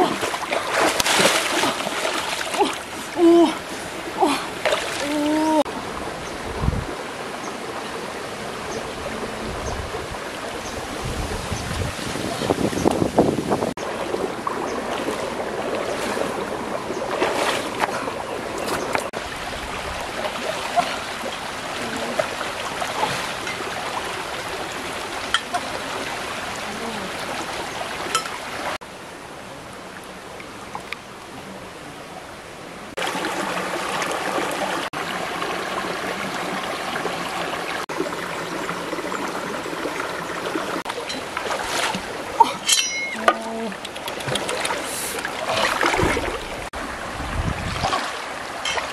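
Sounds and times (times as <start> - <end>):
small water splashes: 0.0 - 5.7, 13.8 - 28.8, 32.9 - 48.9
stream babbling: 0.0 - 48.9.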